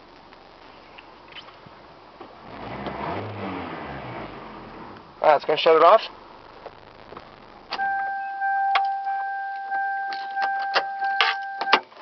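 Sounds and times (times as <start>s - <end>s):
car engine switching off: 2.2s - 9.8s
car warning chime pulsing: 7.8s - 11.8s.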